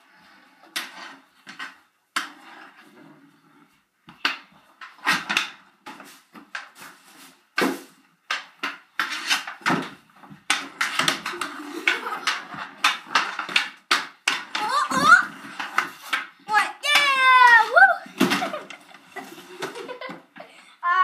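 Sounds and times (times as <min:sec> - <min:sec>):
hockey sticks slapping ball: 0:00.7 - 0:02.5, 0:04.1 - 0:07.0, 0:07.6 - 0:20.4
hockey sticks clacking together: 0:07.6 - 0:20.5.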